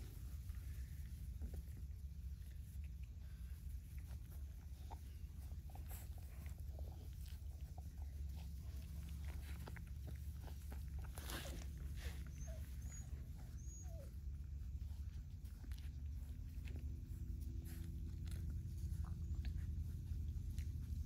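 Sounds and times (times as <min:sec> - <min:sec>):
puppies clicking and rustling: 0:00.0 - 0:21.0
steady low rumble: 0:00.0 - 0:21.0
puppies squeaking: 0:08.3 - 0:16.4.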